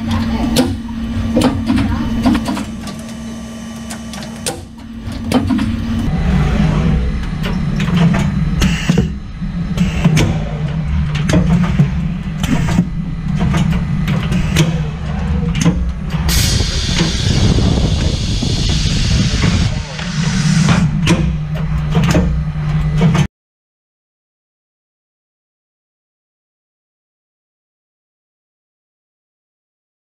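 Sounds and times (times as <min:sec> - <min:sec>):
low machine hum: 0:00.0 - 0:23.3
machine clicks and knocks: 0:00.1 - 0:06.1, 0:07.2 - 0:17.3, 0:19.3 - 0:23.3
hiss: 0:16.3 - 0:20.8.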